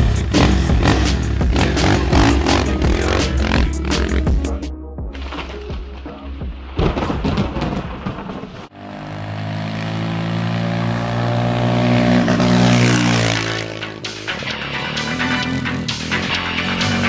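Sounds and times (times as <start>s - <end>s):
motorcycle engine driving past: 8.7s - 14.0s.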